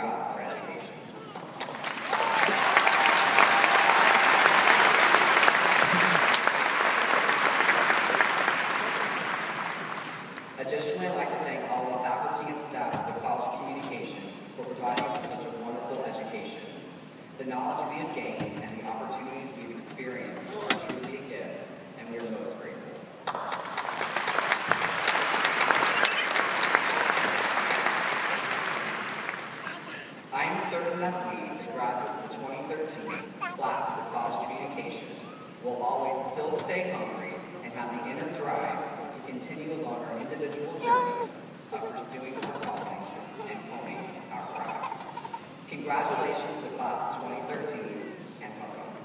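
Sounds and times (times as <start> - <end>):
large audience applauding: 1.5 - 10.6, 23.3 - 30.0.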